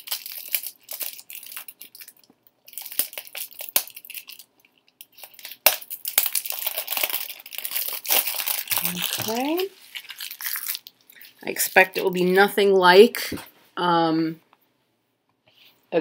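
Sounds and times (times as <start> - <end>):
cellophane crinkling: 0.0 - 12.2.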